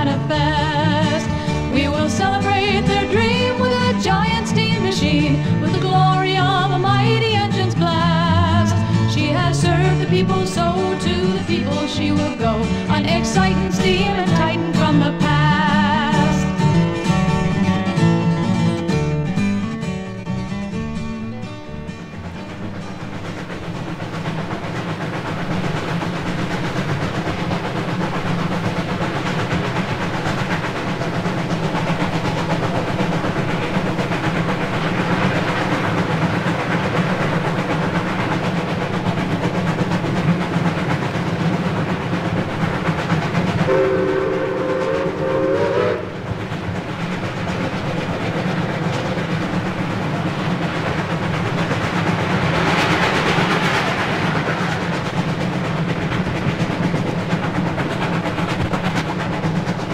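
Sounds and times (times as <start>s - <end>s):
steam locomotive rumble: 0.0s - 59.9s
steam whistle: 43.7s - 46.3s.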